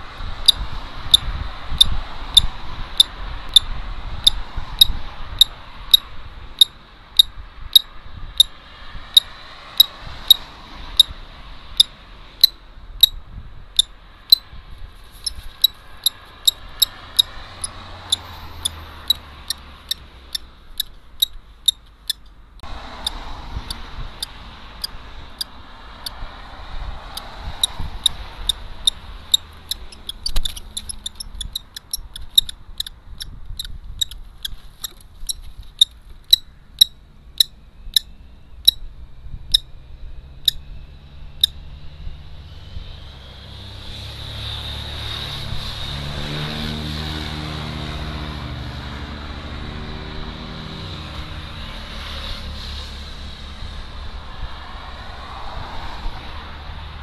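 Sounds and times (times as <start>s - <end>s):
kestrel calling: 27.2s - 38.1s.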